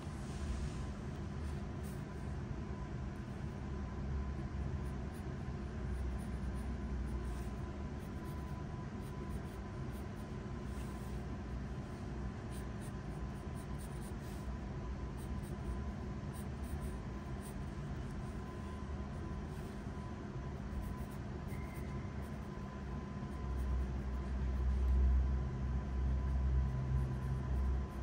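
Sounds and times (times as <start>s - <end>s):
pencil scratching on paper: 5.9s - 14.5s, 15.1s - 25.0s, 26.2s - 28.0s.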